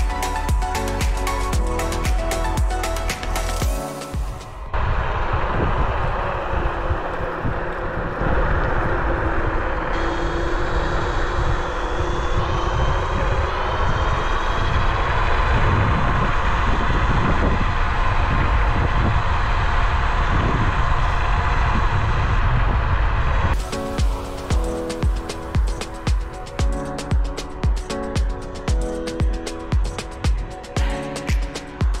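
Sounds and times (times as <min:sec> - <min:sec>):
wind rumble on microphone: 0:04.2 - 0:32.0
electric motor whine: 0:04.8 - 0:17.7.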